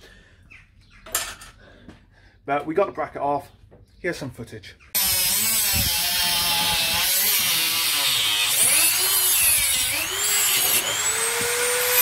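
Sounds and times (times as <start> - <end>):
cut-off disc grinding metal: 5.0 - 12.0.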